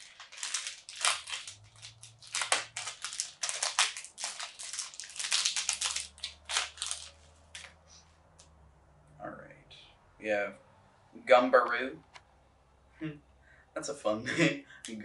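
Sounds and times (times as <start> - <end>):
cardboard pack tearing: 0.0 - 7.7.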